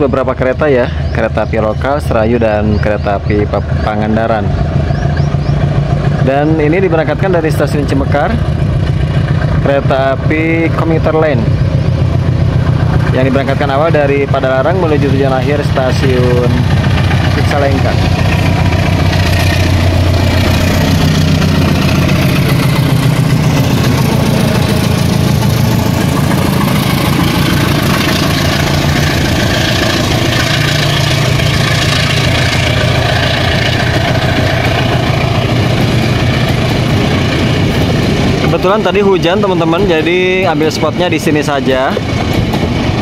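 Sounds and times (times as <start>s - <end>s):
diesel locomotive engine: 0.0s - 43.0s.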